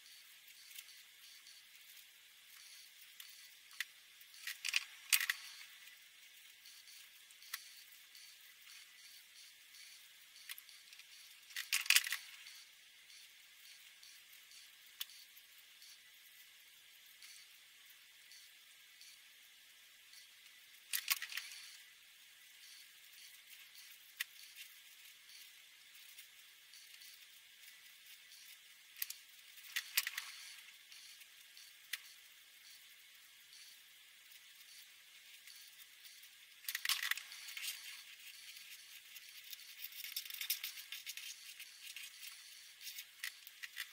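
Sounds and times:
marker scratching on paper: 0:29.6 - 0:32.2, 0:37.1 - 0:43.9.

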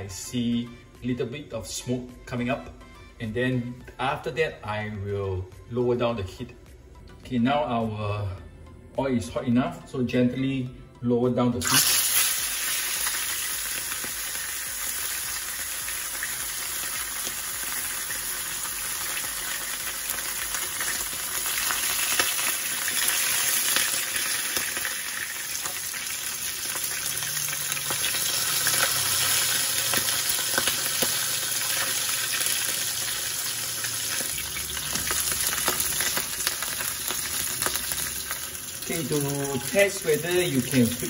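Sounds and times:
fish sizzling in oil: 0:11.6 - 0:41.0.

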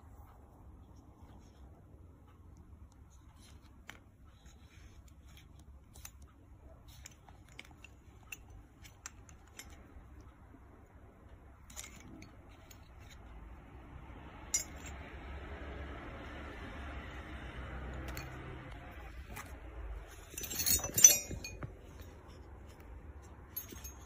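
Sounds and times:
metal piping nozzles clinking: 0:03.3 - 0:06.3, 0:06.9 - 0:10.3, 0:11.6 - 0:13.5, 0:14.4 - 0:15.1, 0:17.1 - 0:24.0.

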